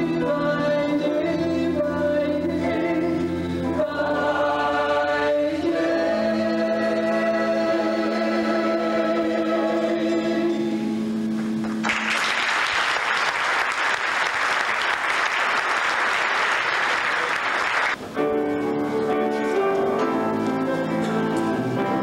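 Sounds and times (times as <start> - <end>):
audience applauding: 11.4 - 18.0
instrumental piano music: 18.0 - 22.0.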